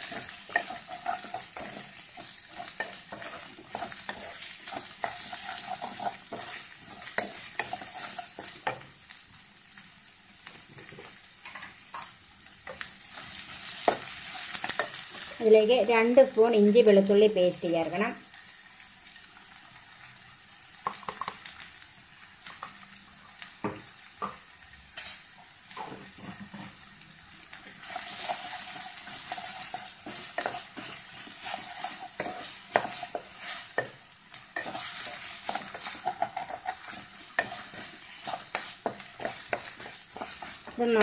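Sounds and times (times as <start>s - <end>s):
spatula scraping a pan: 0.0s - 8.8s, 27.8s - 41.0s
onions sizzling in oil: 0.0s - 41.0s.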